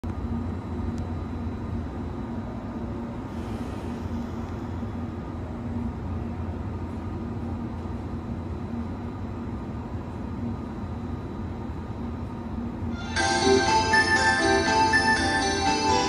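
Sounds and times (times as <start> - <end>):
train equipment humming: 0.0 - 16.0
high steady tone: 12.9 - 16.0.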